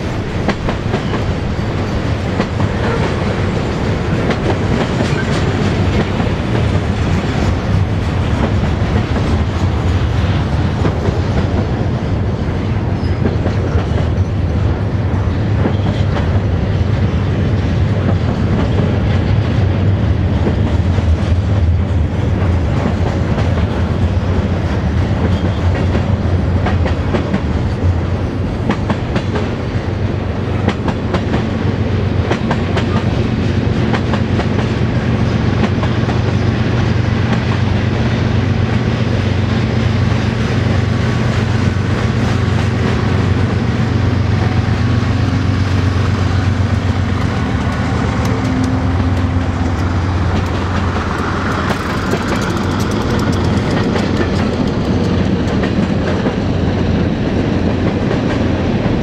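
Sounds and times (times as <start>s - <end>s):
wheels clacking over rail joints: 0.0s - 16.5s, 40.0s - 56.5s
freight train rolling past: 0.0s - 59.0s.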